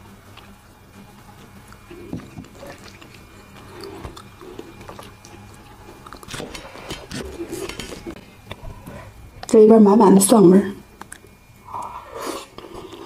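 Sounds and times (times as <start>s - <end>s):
chewing and swallowing: 1.5s - 9.1s.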